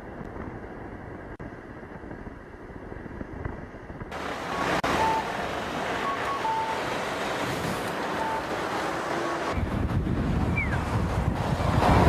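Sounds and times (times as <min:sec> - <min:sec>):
wind buffeting microphone: 0:00.0 - 0:12.0
strong wind rushing: 0:06.7 - 0:12.0.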